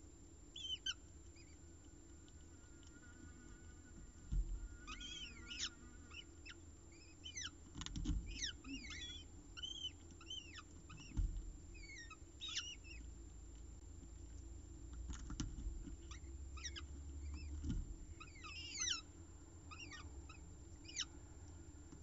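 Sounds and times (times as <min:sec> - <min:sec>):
falcon chicks begging chirps: 0:00.6 - 0:07.6, 0:08.2 - 0:11.2, 0:11.8 - 0:13.1, 0:16.1 - 0:17.6, 0:18.2 - 0:19.1, 0:19.7 - 0:21.1
dull low thumps: 0:04.2 - 0:05.2.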